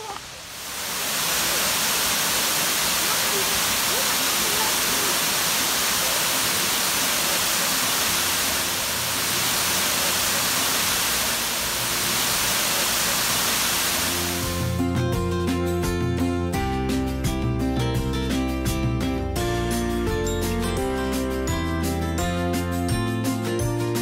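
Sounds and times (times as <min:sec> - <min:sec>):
waterfall rushing: 0:00.0 - 0:14.8.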